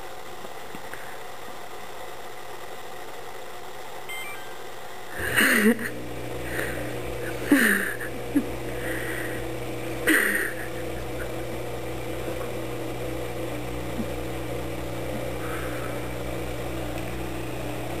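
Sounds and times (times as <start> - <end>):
dishwasher humming: 4.1 - 18.0.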